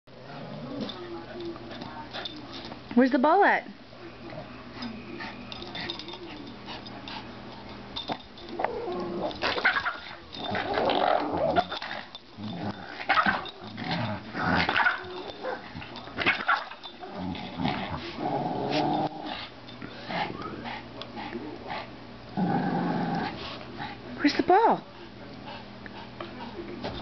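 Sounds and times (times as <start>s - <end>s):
small dog growling playfully: 8.6s - 15.2s, 17.0s - 20.4s, 22.3s - 23.5s.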